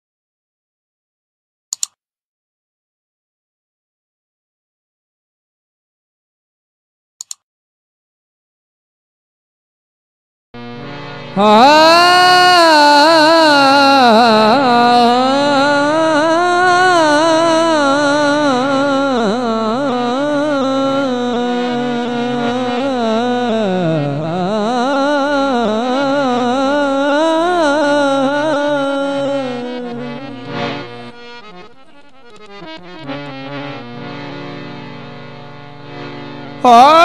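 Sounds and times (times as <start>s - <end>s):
instrumental drone: 10.6s - 37.0s
man singing long note: 11.3s - 30.6s, 36.6s - 37.0s.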